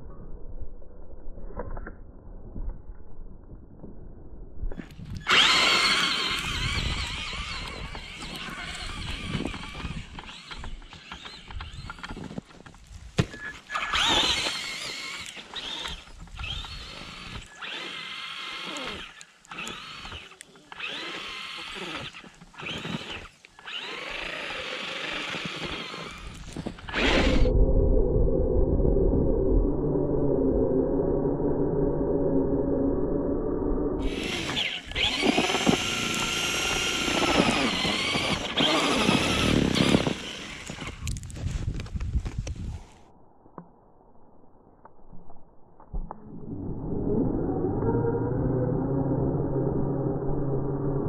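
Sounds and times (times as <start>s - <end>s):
rc truck motor whining: 4.8s - 12.4s, 13.4s - 27.5s, 34.0s - 41.3s
tyres digging through snow: 5.0s - 27.5s, 34.0s - 43.0s.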